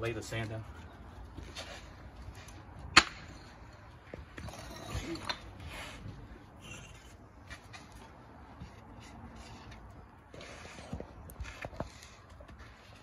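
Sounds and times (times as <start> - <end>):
concrete pavers clacking: 0.0 - 13.0
light taps and scuffs: 7.4 - 13.0.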